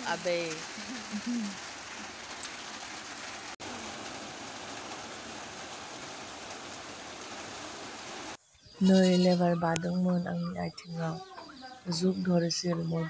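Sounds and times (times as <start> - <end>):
heavy rain falling: 0.0 - 8.4.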